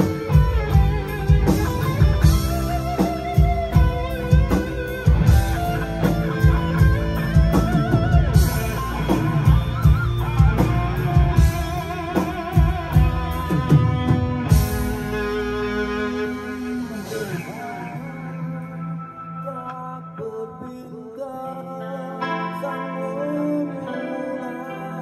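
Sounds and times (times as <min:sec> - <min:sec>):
drum kit beat: 0:00.0 - 0:19.1
distorted electric guitars: 0:00.0 - 0:25.0.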